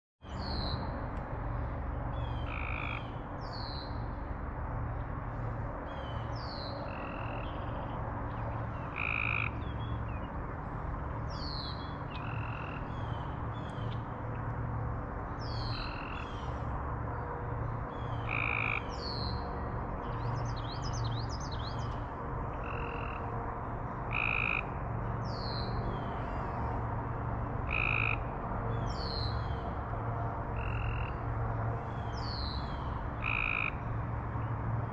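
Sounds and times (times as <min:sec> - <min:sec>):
frogs calling: 0:02.2 - 0:03.8, 0:06.7 - 0:07.8, 0:08.5 - 0:10.3, 0:11.3 - 0:13.3, 0:15.4 - 0:16.6, 0:17.9 - 0:19.4, 0:20.0 - 0:23.4, 0:24.0 - 0:25.5, 0:27.6 - 0:28.3, 0:30.5 - 0:31.3, 0:32.7 - 0:33.9.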